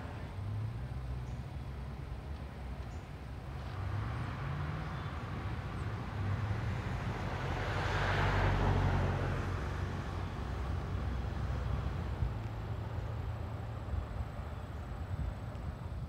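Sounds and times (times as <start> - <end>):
car driving past: 3.6 - 13.8.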